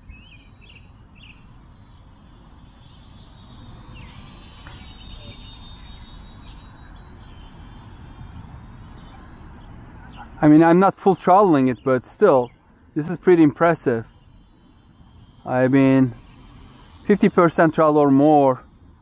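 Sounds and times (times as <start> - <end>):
wind rumble on microphone: 0.0 - 10.5
birds chirping: 0.0 - 19.0
model airplane motor whine: 0.0 - 19.0.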